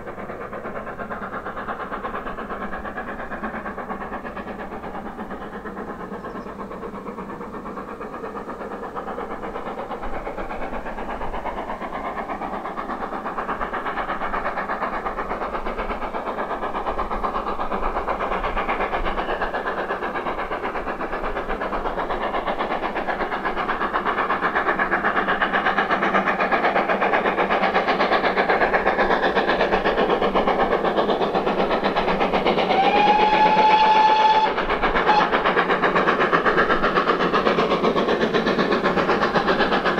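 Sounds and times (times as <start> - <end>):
steam locomotive chuffing: 0.0 - 39.9
steam whistle: 32.7 - 35.4.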